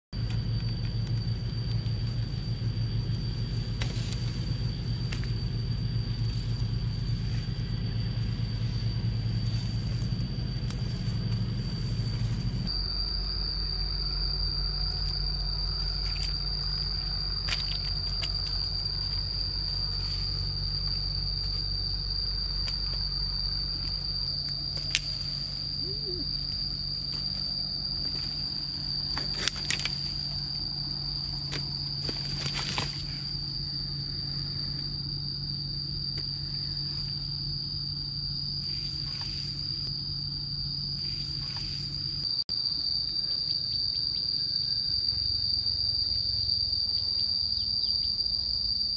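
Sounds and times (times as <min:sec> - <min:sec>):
low rumble: 0:00.2 - 0:42.4
high-pitched insect chirring: 0:00.2 - 0:48.9.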